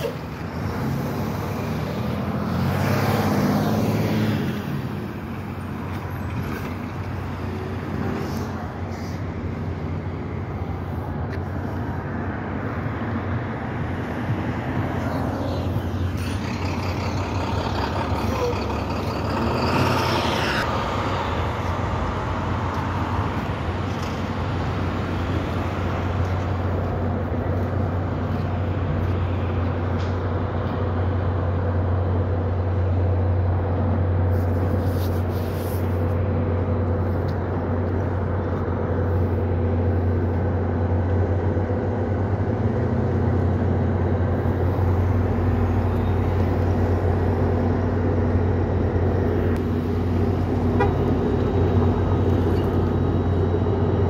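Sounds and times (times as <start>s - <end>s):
vehicle passing by: 0.0s - 11.0s, 11.6s - 29.7s
low engine drone: 4.0s - 54.0s.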